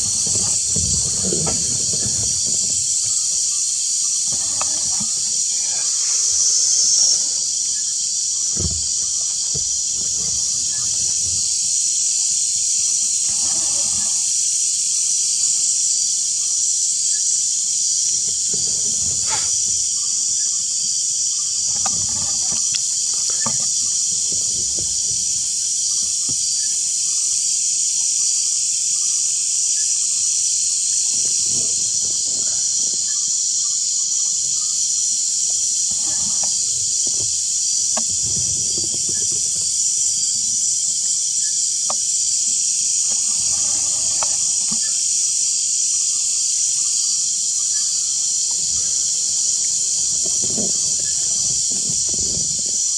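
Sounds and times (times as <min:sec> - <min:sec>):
soft low bumps: 0:00.0 - 0:11.8
insects chorus: 0:00.0 - 0:52.9.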